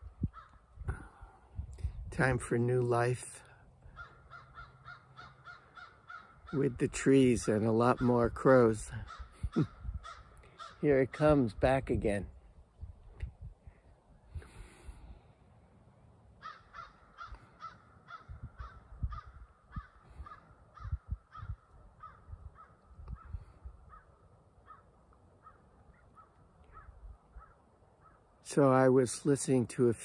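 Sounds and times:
crow cawing: 0:00.3 - 0:00.6, 0:03.8 - 0:06.6, 0:09.0 - 0:10.8, 0:16.4 - 0:28.3.

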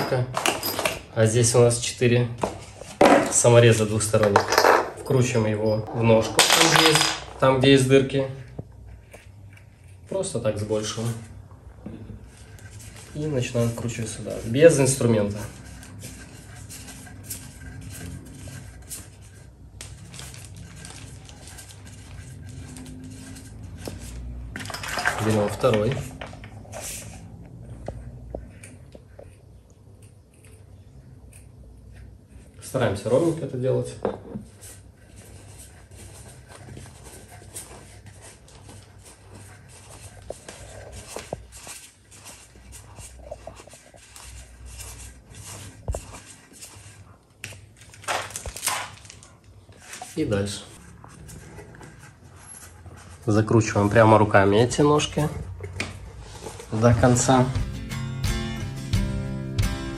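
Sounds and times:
faint rustling and scraping: 0:00.0 - 0:57.5
plastic film crinkling: 0:18.9 - 0:24.4, 0:36.9 - 0:50.8.

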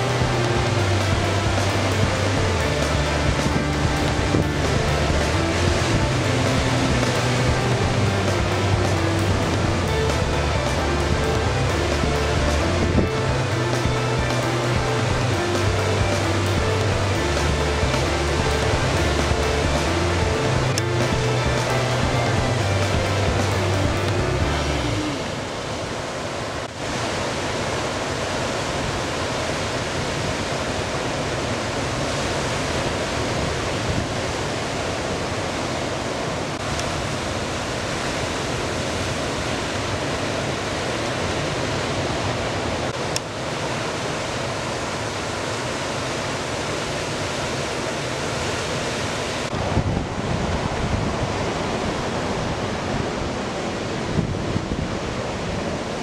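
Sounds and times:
wind on microphone: 0:00.0 - 0:26.0, 0:49.4 - 0:56.0
ocean surf breaking: 0:00.0 - 0:56.0.

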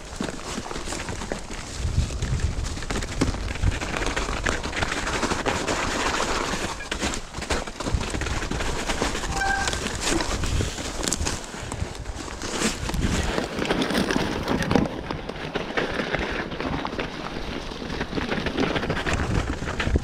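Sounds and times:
bike rattling clicks and knocks: 0:00.0 - 0:09.3, 0:09.9 - 0:20.0
bike tyres crunching through snow: 0:00.0 - 0:20.0
brief high squeak: 0:09.2 - 0:10.0.

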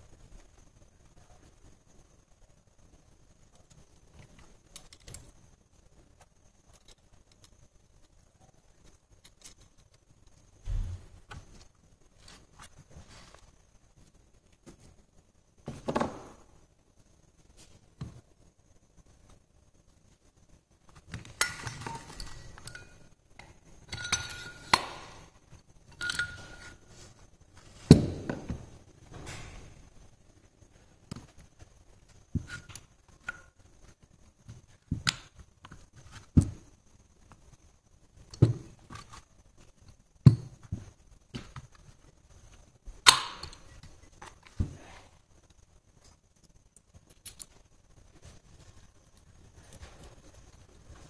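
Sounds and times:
metal clinks and knocks: 0:21.2 - 0:26.9.

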